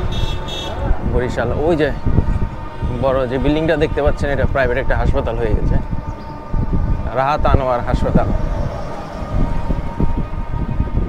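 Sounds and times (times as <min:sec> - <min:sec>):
vehicle rumble on road: 0:00.0 - 0:11.0
low thumps: 0:05.6 - 0:11.0.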